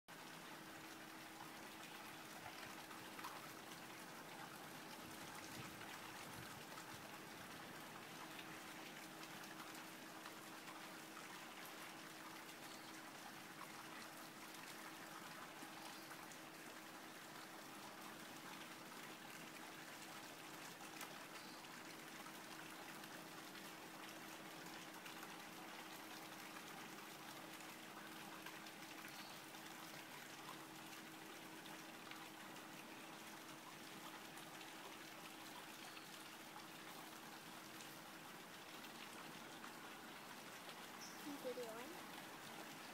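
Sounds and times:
faint background hiss: 0.1s - 42.9s.

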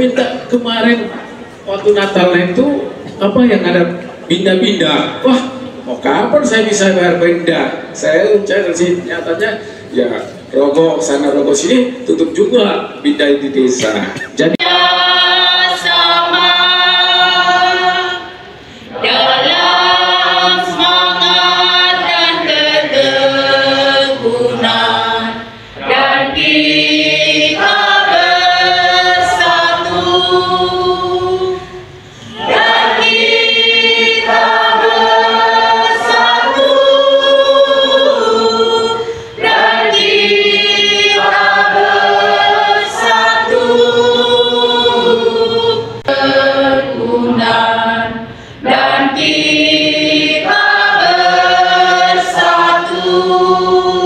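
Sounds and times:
crowd singing together: 13.8s - 54.0s.

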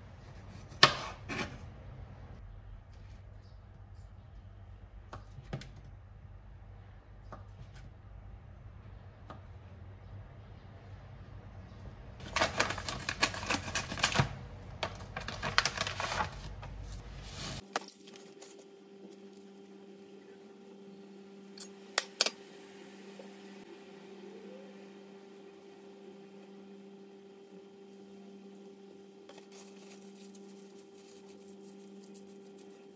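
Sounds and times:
steady low hum: 0.0s - 32.9s
plastic crinkling: 12.2s - 19.3s, 29.3s - 32.9s.

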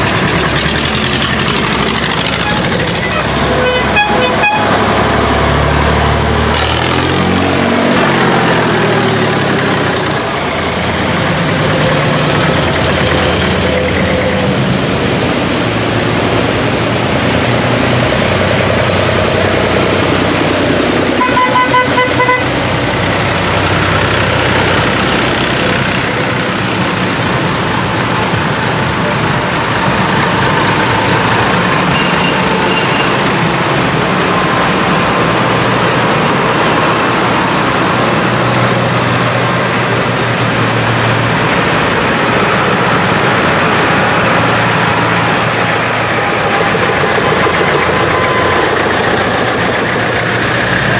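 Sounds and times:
diesel tractors driving past: 0.0s - 50.9s
horn sounding: 2.2s - 5.3s, 21.1s - 22.7s.

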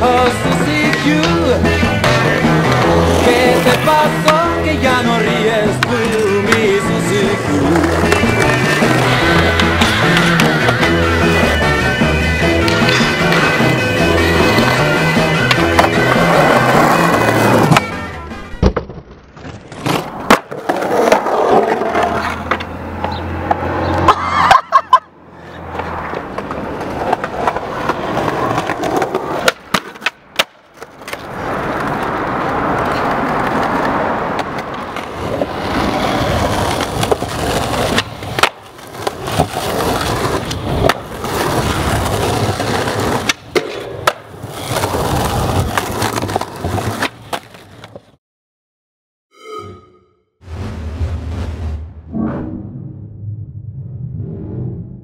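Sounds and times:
skateboard deck clacks: 0.0s - 11.8s, 12.6s - 21.2s, 25.7s - 48.1s
skateboard wheels rolling on concrete: 0.0s - 48.2s.

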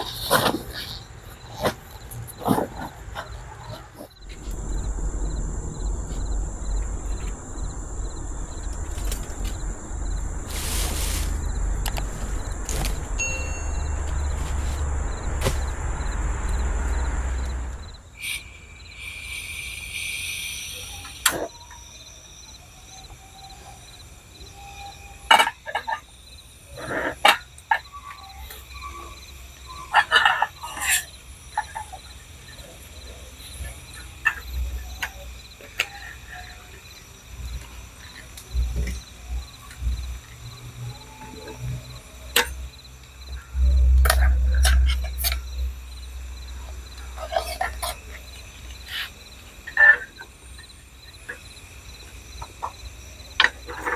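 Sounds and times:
night insects chirring: 0.0s - 53.9s
loud rushing noise with rumble: 4.2s - 18.2s.

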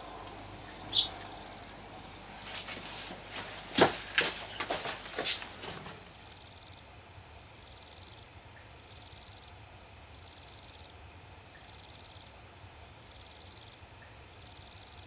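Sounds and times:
low hum: 0.0s - 3.3s
faint cricket trills: 0.0s - 15.0s.

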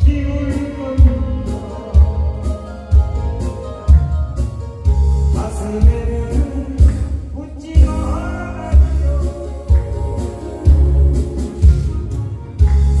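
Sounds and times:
man singing through loudspeakers: 0.0s - 3.3s, 5.3s - 12.0s
backing track with bass drum: 0.0s - 13.0s.

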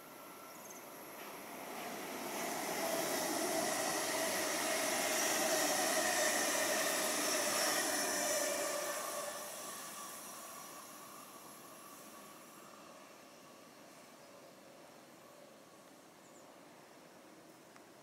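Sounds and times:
train wheels on rail: 0.0s - 14.2s
faint train whine: 0.0s - 18.0s.

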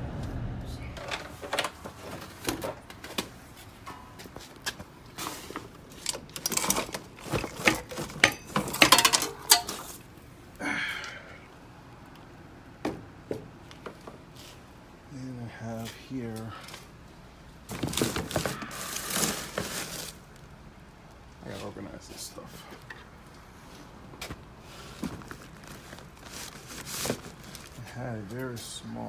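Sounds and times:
small hard objects clattering: 5.1s - 10.1s, 17.7s - 20.4s
scraping rustle: 17.7s - 20.4s, 23.6s - 28.8s.

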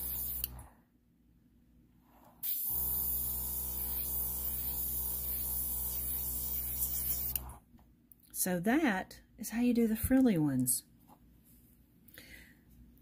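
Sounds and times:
airbrush air hiss: 0.0s - 0.5s, 2.4s - 7.5s
compressor motor hum: 0.0s - 0.7s, 2.5s - 7.6s.

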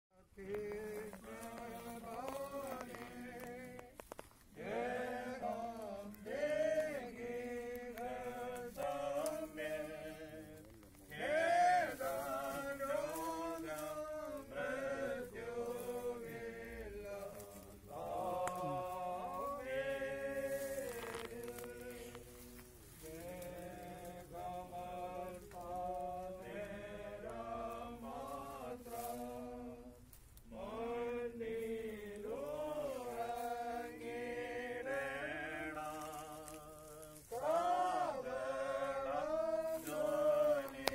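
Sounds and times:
group singing a hymn unaccompanied: 0.2s - 40.9s.

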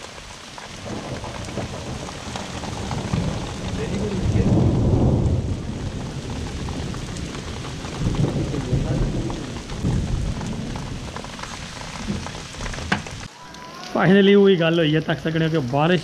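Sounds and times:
thunder rumbling: 0.0s - 13.4s
raindrop taps: 0.0s - 14.0s
rain hissing: 0.0s - 16.0s.

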